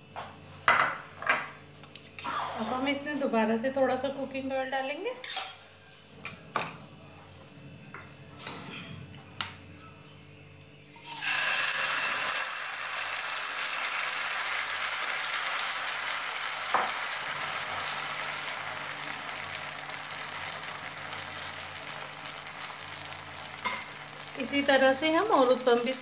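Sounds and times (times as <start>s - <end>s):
batter sizzling in hot oil: 11.0s - 26.0s.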